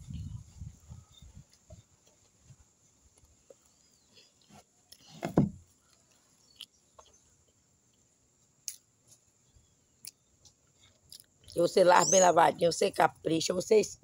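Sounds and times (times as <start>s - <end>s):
dull thump: 5.1s - 5.6s
mouth sounds of chewing: 5.7s - 8.9s, 10.0s - 11.7s.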